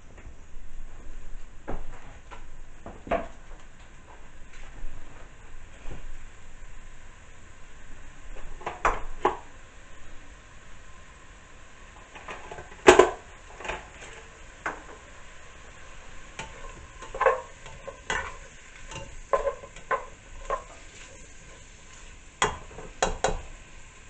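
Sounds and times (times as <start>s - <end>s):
faint sizzling: 0.0s - 24.0s
spoon scraping and knocking pot: 16.3s - 21.7s.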